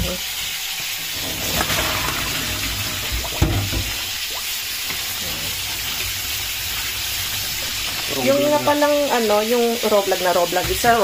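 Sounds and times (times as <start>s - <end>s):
tap water splashing in sink: 0.0s - 11.0s.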